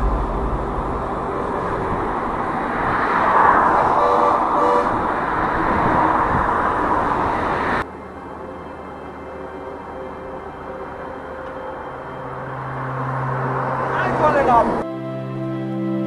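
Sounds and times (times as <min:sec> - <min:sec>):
road and wind noise: 0:00.0 - 0:15.5
passing traffic: 0:00.0 - 0:15.8
brief horn-like tones: 0:04.0 - 0:05.0.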